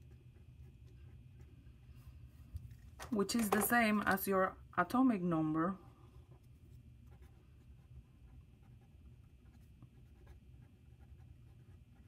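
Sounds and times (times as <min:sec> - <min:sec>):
pen scratching on paper: 0:06.3 - 0:12.0.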